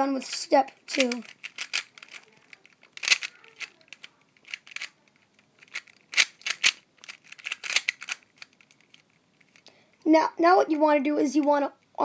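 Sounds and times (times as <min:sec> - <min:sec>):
puzzle cube layers clicking: 0:00.3 - 0:09.6.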